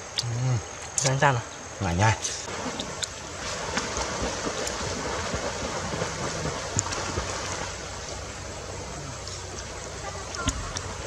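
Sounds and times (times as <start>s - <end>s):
water splashing: 2.4s - 11.0s.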